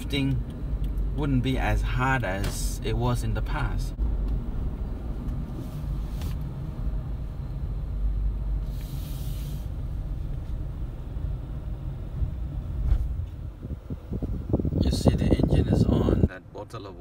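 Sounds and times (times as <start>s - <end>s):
car engine rumble inside cabin: 0.0s - 17.0s
brief hiss: 8.6s - 9.8s.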